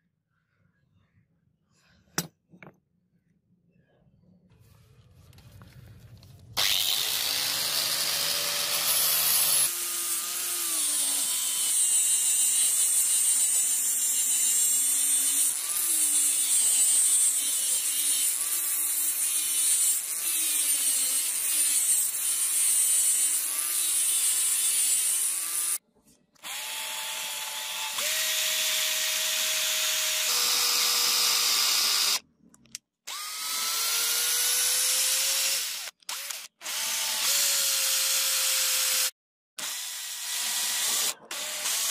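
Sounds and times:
angle grinder grinding metal: 6.6 - 25.8, 33.1 - 41.9
electric drill boring into wood: 6.6 - 25.8, 26.4 - 32.2, 33.1 - 41.9.

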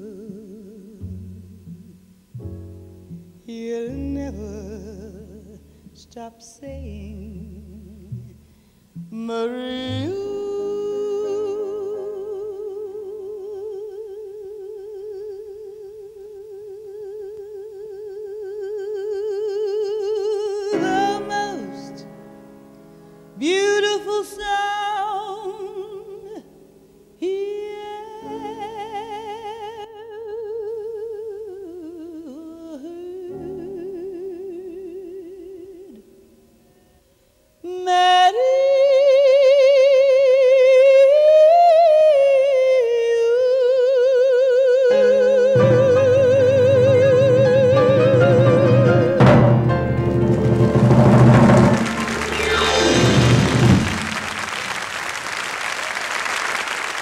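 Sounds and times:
woman singing jazz ballad: 0.0 - 2.0, 3.1 - 8.4, 9.0 - 22.2, 23.4 - 26.6, 27.2 - 36.1, 37.6 - 50.0
piano accompaniment: 1.0 - 13.4, 20.5 - 24.6, 44.9 - 55.2.

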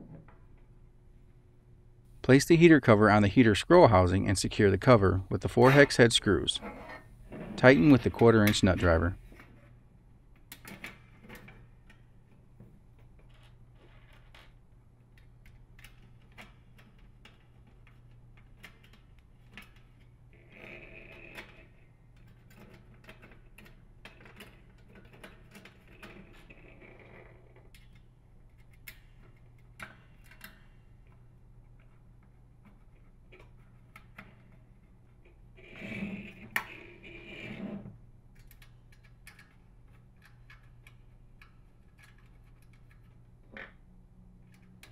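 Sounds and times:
steady low hum: 0.0 - 13.8
metal scraping: 4.6 - 9.1
clicks and taps of screws: 38.3 - 43.7.

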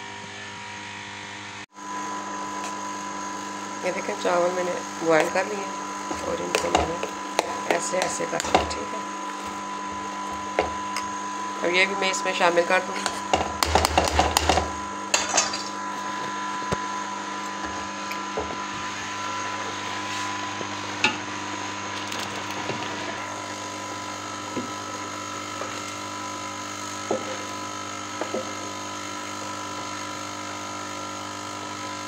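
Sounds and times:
steady electric hum: 0.0 - 31.6
spoon scraping metal pot: 6.0 - 11.2.

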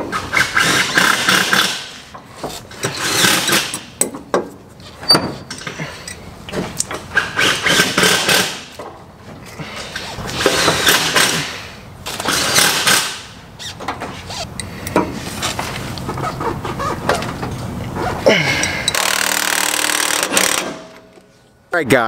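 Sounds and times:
wrench scraping and clanking metal: 0.5 - 4.2, 13.6 - 21.1.

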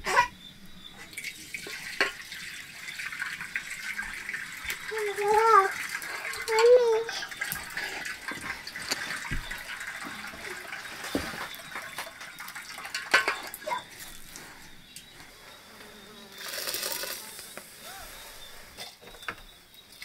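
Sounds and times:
water splashing and sloshing: 1.1 - 15.4.

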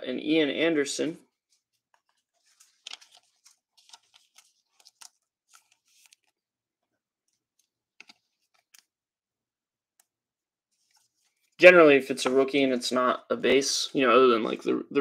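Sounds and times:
trading cards rustling and clicking: 1.8 - 6.4.

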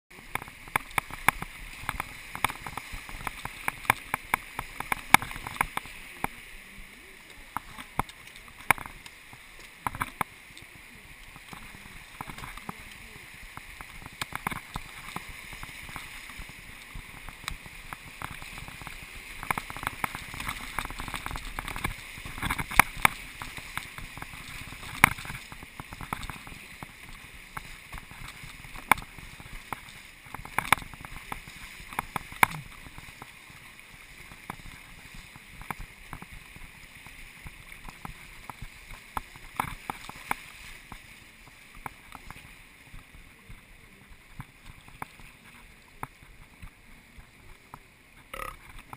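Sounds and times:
splashes and knocks on canoe hull: 0.1 - 6.4, 11.3 - 43.6
river water rushing: 0.1 - 48.9.

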